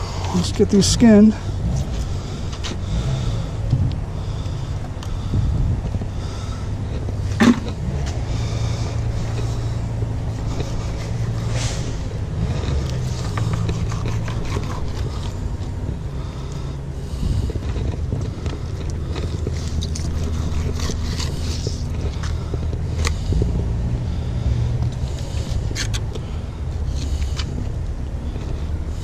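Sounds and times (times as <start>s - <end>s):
low rumble: 0.0s - 29.0s
knife scraping cutting board: 13.0s - 15.4s.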